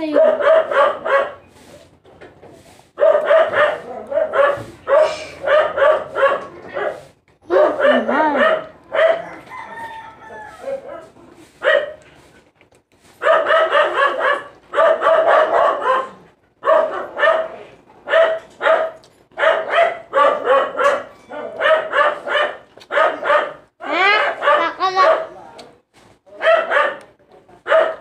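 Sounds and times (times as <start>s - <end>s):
dog barking: 0.0s - 1.5s, 3.0s - 9.9s, 10.5s - 12.0s, 13.2s - 25.4s, 26.3s - 28.0s.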